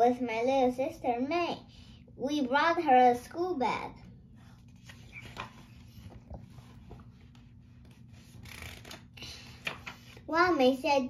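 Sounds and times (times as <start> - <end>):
book page turning: 4.4 - 10.2.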